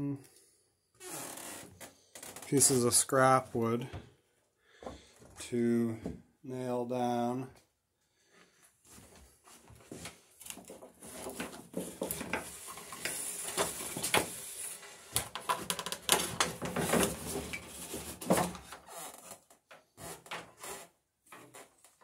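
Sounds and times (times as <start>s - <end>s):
scrap wood clattering: 10.6s - 14.7s, 15.4s - 19.2s.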